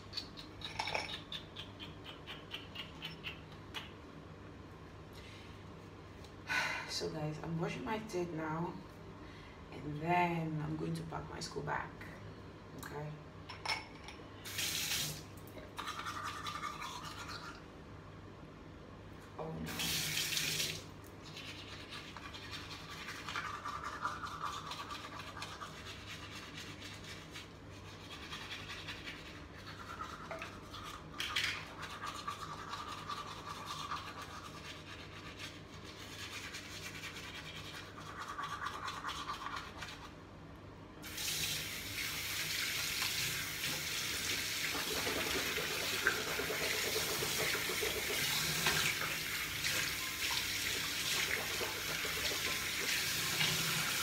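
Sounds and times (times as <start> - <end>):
toothbrush scrubbing teeth: 15.6 - 17.6, 21.2 - 40.2, 44.7 - 48.9, 50.7 - 54.0
tap water running into sink: 41.1 - 54.0.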